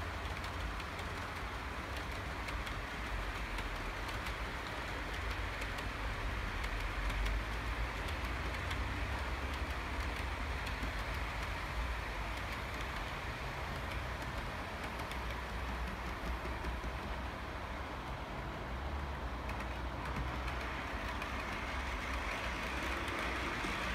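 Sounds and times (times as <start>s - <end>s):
model train rumbling: 0.0s - 23.9s
wheels clicking on rails: 0.0s - 23.9s.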